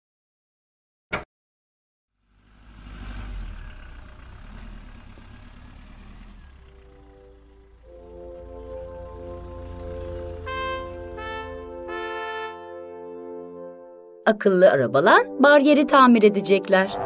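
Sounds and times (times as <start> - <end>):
cartoon car engine sound effect: 2.2 - 12.4
music notes: 6.9 - 14.2.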